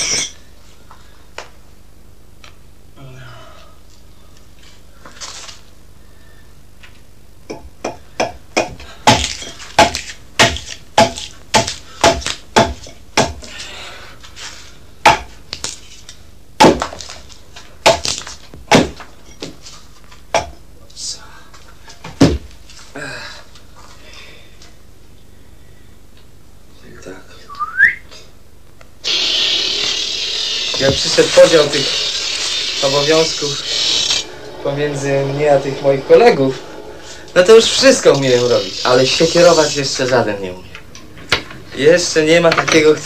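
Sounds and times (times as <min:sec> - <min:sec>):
axe chopping wood: 0:08.2 - 0:13.5, 0:15.0 - 0:15.3, 0:16.6 - 0:17.1, 0:17.8 - 0:19.0.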